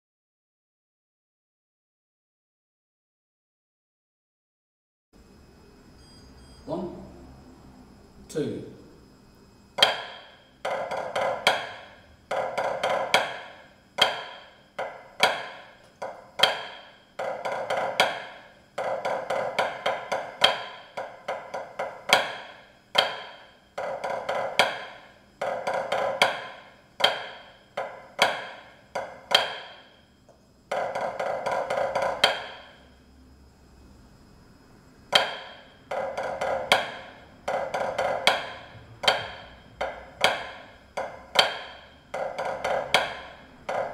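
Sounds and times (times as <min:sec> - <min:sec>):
snare drum strokes on practice pad: 0:09.8 - 0:30.0, 0:30.7 - 0:32.9, 0:35.1 - 0:43.9.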